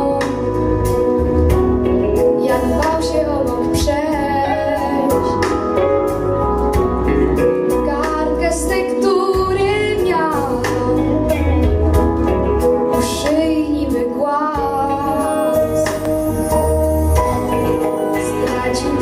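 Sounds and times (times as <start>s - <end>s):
instrumental accompaniment with bass: 0.0s - 19.0s
boy singing into microphone: 2.4s - 5.8s, 7.8s - 11.8s, 18.2s - 19.0s.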